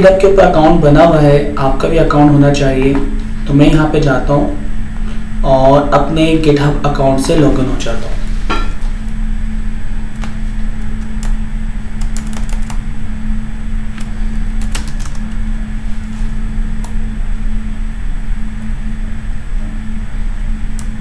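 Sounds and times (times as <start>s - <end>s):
low electrical hum: 0.0s - 21.0s
computer keyboard keystrokes: 10.8s - 11.4s, 12.0s - 12.8s, 14.0s - 15.4s.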